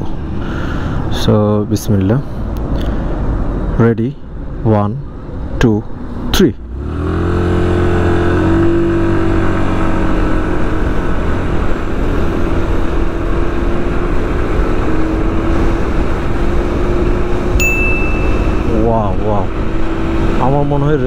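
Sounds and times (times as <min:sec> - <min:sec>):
high steady beep: 0:17.6 - 0:18.7.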